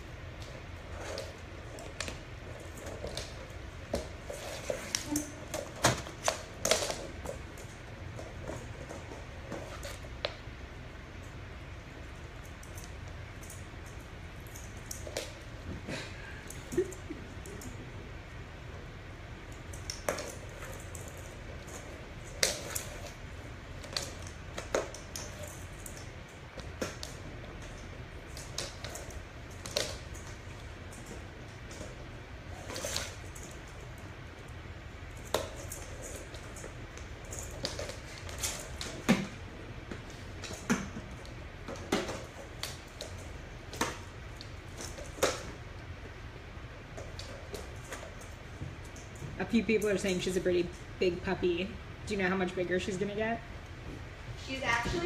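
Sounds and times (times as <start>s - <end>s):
puppy claws clicking on wood floor: 0.4s - 10.4s, 12.3s - 15.5s, 19.4s - 46.1s.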